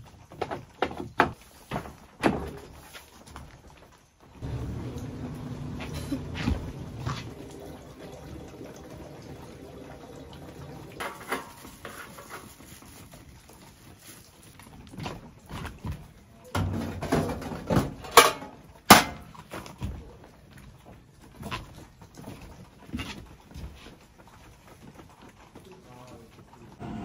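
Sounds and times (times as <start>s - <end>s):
objects knocking and clattering: 0.0s - 7.4s, 10.9s - 13.4s, 14.6s - 23.8s
footsteps on wooden deck: 4.4s - 7.4s.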